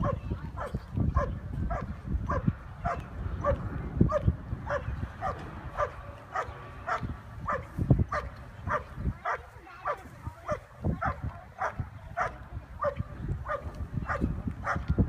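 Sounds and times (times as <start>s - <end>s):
dog barking: 0.0s - 14.8s.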